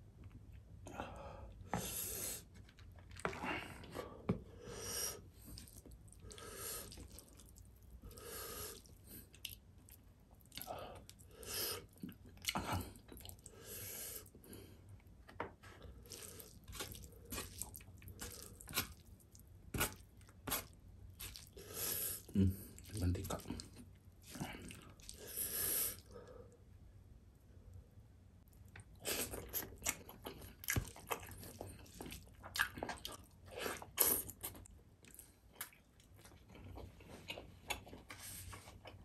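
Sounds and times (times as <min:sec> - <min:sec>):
person chewing wetly: 0:02.4 - 0:04.0, 0:05.4 - 0:13.6, 0:15.8 - 0:26.1, 0:28.5 - 0:39.0
fingers squishing rice: 0:16.1 - 0:25.2.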